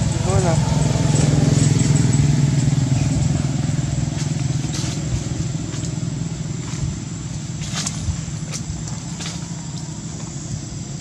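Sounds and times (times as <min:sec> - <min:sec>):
engine rumbling: 0:00.0 - 0:11.0.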